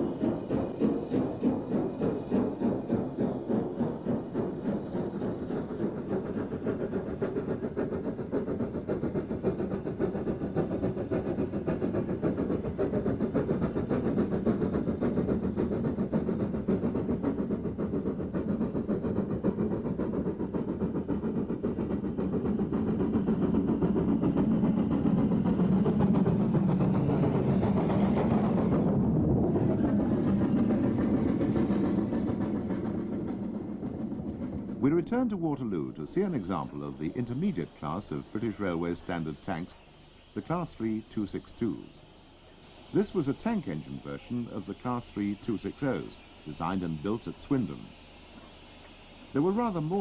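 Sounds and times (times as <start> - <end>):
steam locomotive exhaust beats: 0.0 - 50.0.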